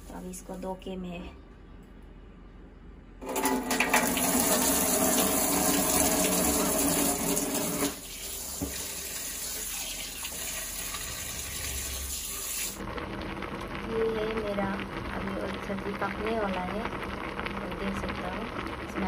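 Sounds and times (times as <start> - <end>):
water running into steel sink: 3.2 - 12.8.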